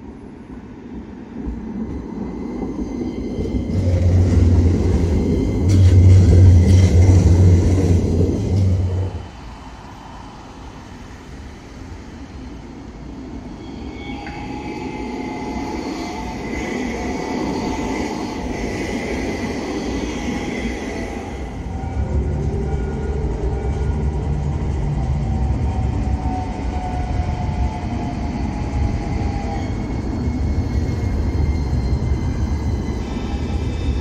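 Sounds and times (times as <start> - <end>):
tram low hum: 0.0 - 34.0
tram rolling rumble on track: 0.0 - 34.0
electric whine: 3.2 - 9.4.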